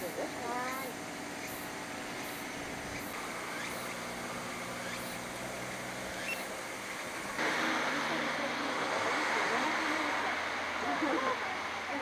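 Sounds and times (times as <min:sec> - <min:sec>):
steady low hum: 0:00.0 - 0:12.0
faint high-pitched chirping: 0:00.6 - 0:05.2, 0:06.1 - 0:06.5.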